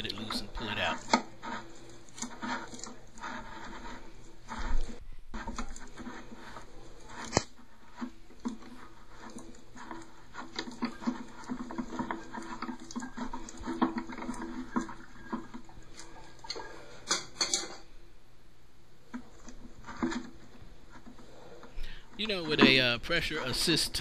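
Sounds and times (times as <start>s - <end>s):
plastic clicking and scraping: 0.0s - 17.9s, 19.0s - 24.0s.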